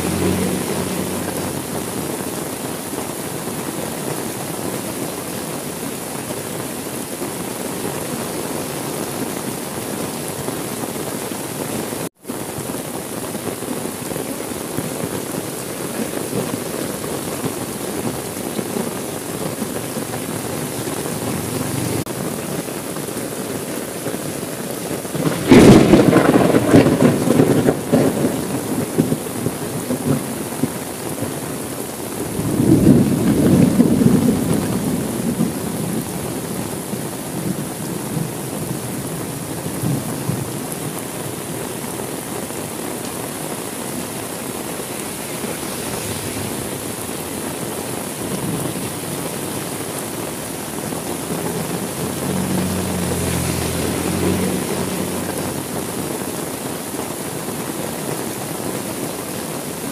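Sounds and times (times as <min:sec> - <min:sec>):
heavy rain falling: 0:00.0 - 0:59.9
thunder rumbling: 0:25.1 - 0:30.8, 0:32.2 - 0:36.6, 0:43.8 - 0:56.2.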